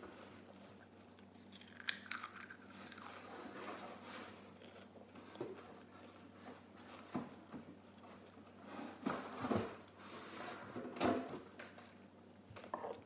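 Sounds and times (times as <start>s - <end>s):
crisps crunching: 0.7s - 3.5s.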